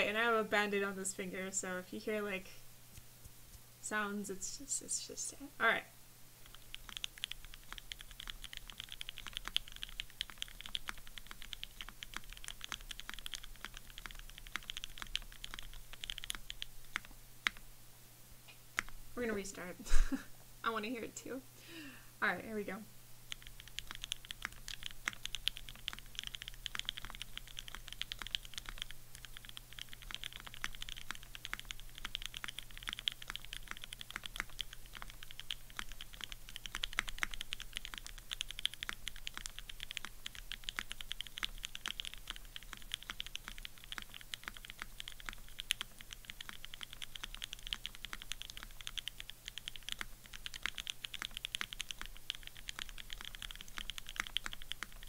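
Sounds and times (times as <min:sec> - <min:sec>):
mechanical keyboard typing: 0:06.4 - 0:17.6, 0:23.3 - 0:55.0.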